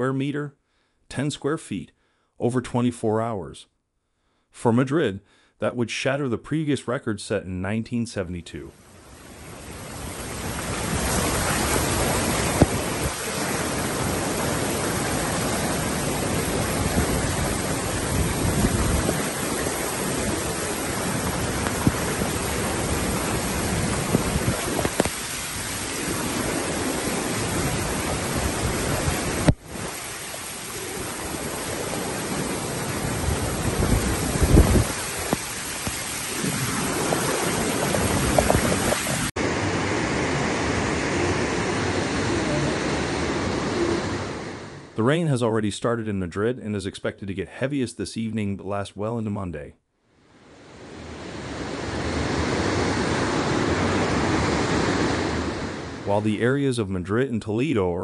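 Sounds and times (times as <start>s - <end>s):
rain falling: 8.8s - 39.4s
floodwater rushing: 8.8s - 44.7s, 50.6s - 56.2s.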